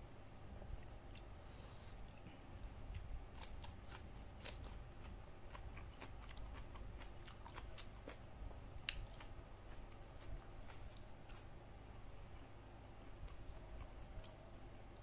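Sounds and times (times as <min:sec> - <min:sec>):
chewing smacks: 0:03.4 - 0:08.2, 0:08.8 - 0:11.5.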